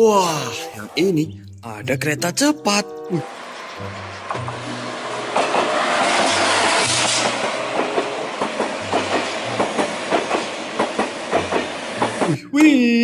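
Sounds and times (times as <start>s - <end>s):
high-speed train passing: 0.4s - 12.5s
train wheels clicking over rail joints: 3.3s - 12.5s.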